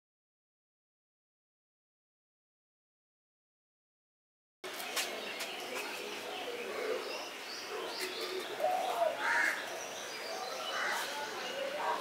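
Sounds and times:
birds calling: 0:04.7 - 0:12.0.

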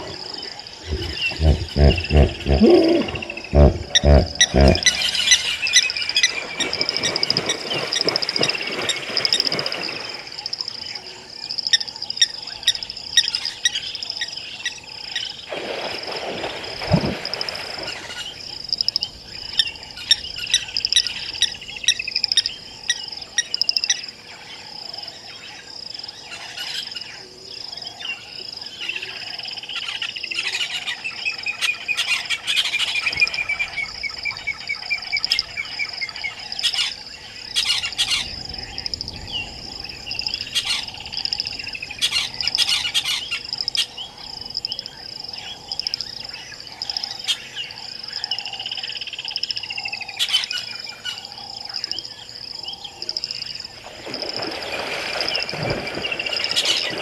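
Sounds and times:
birds chirping: 0:00.0 - 0:10.5
hippo splashing into water: 0:00.0 - 0:10.6, 0:15.5 - 0:18.5, 0:53.8 - 0:57.0
insect trill: 0:00.0 - 0:57.0.

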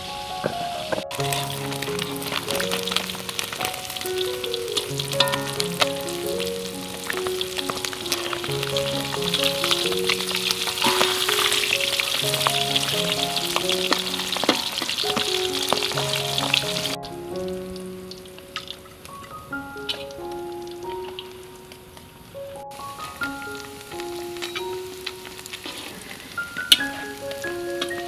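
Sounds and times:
fish sizzling in hot oil: 0:01.1 - 0:17.0, 0:22.8 - 0:28.0.

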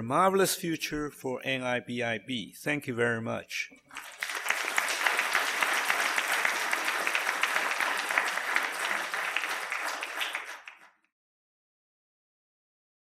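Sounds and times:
audience applauding: 0:03.8 - 0:11.0.

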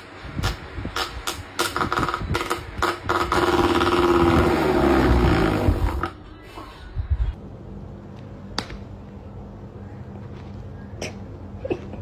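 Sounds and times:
electric fan rattling: 0:00.0 - 0:06.3.

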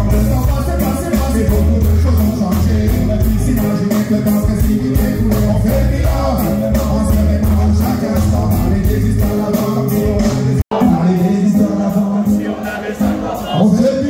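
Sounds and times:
bass: 0:00.0 - 0:10.7
drum kit cymbal beat: 0:00.0 - 0:14.0
man singing into microphone: 0:00.0 - 0:14.0.

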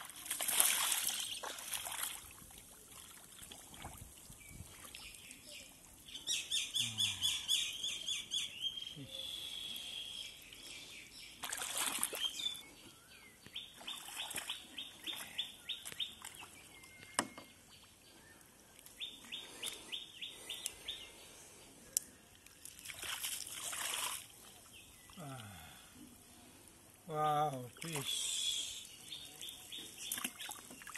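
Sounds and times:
water splashing in mud: 0:00.0 - 0:05.0, 0:11.4 - 0:12.5, 0:13.8 - 0:16.5, 0:22.6 - 0:24.4, 0:29.4 - 0:30.9.

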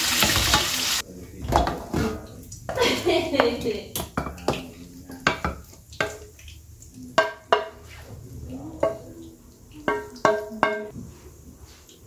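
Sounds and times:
wooden spatula scraping a wok: 0:07.5 - 0:09.0.

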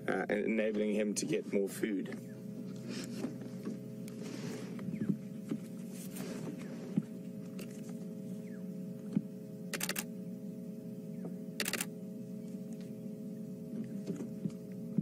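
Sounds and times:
low hum with steady tones: 0:00.0 - 0:15.0
sharp clicks: 0:09.7 - 0:10.1, 0:11.6 - 0:11.9.

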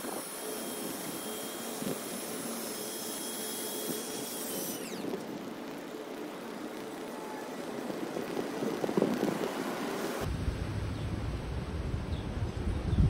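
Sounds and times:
hydraulic power unit whining: 0:00.0 - 0:10.3
gusty wind: 0:04.8 - 0:13.0.

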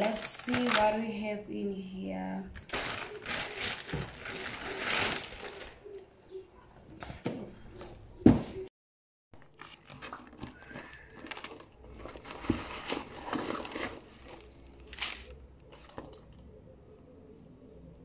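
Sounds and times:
paper and plastic wrap rustling: 0:00.0 - 0:01.2, 0:02.5 - 0:06.0, 0:09.4 - 0:16.3.

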